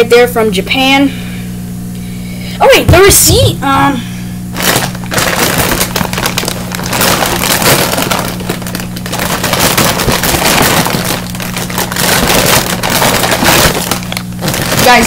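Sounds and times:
low steady hum: 0.0 - 15.0
bag crinkling and rustling: 4.5 - 15.0.

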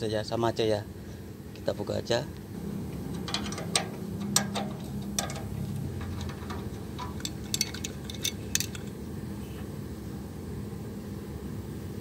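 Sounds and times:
light metallic clicks and clinks: 3.1 - 9.0.

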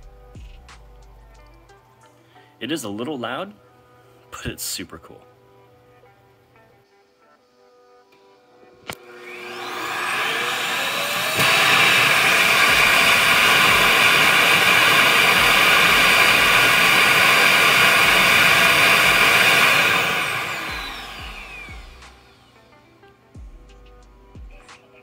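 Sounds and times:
suction motor roaring and whining: 8.9 - 22.5.

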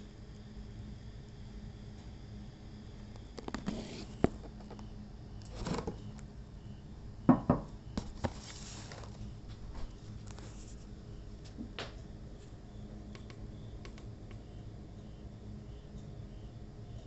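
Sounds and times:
low steady hum: 0.0 - 17.0
soft handling rustles: 8.0 - 11.0.

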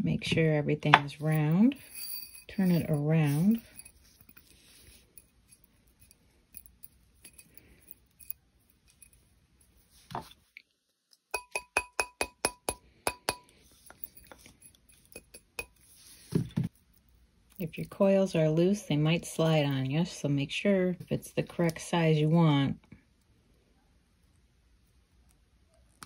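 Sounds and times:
mallet tapping metal ring: 11.4 - 13.5.

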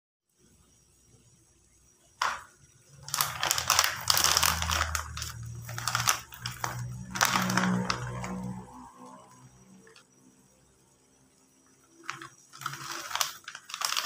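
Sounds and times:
plastic packet crinkling: 2.2 - 8.6, 12.0 - 14.0.

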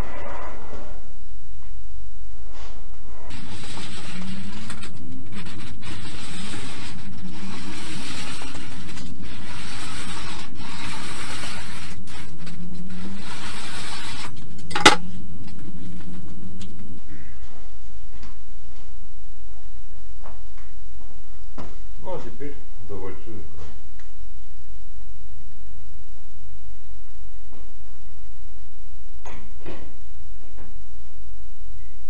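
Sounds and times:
roller bender rasping on steel sheet: 3.3 - 17.0.

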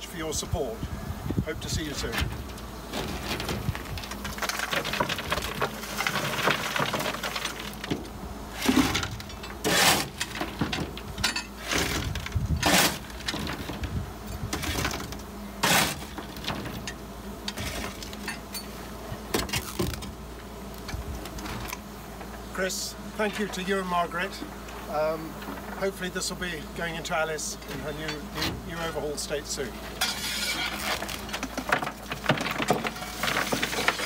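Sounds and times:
coal clattering: 2.2 - 13.9, 30.0 - 34.0.

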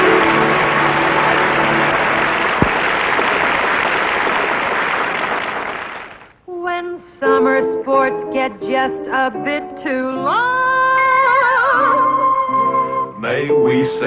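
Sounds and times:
audience applause: 0.0 - 6.3.

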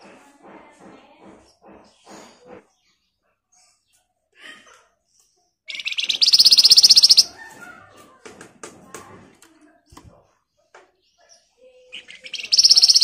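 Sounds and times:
bird chips and clicks: 5.7 - 7.4, 11.9 - 13.0
bird rattling trill: 5.7 - 7.5, 11.9 - 13.0.

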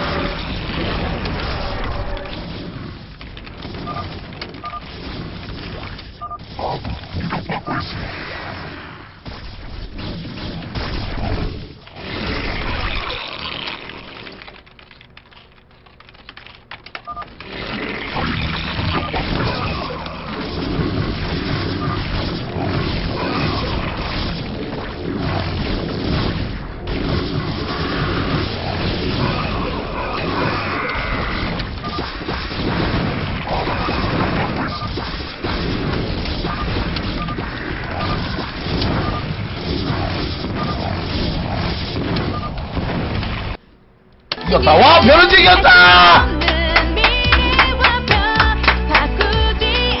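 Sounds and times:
video game battle sound effects: 0.0 - 2.8, 3.6 - 8.1, 17.1 - 42.6, 44.4 - 46.8
keyboard and mouse clicks: 13.6 - 17.5.

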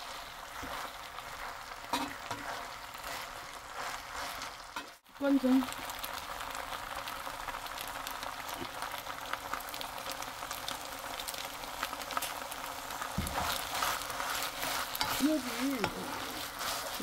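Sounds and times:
food sizzling in a frying pan: 0.0 - 17.0
wooden spoon stirring: 0.5 - 5.0, 13.0 - 17.0.

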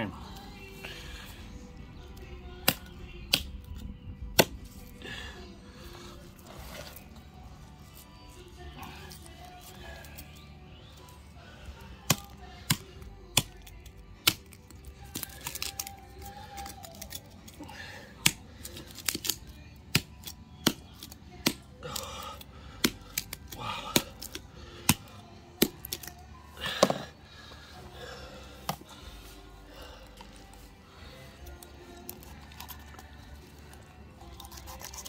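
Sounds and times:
bone cracking: 12.0 - 17.6, 18.2 - 26.2, 31.6 - 33.4, 34.3 - 35.0
rasping crunches: 12.0 - 27.7.

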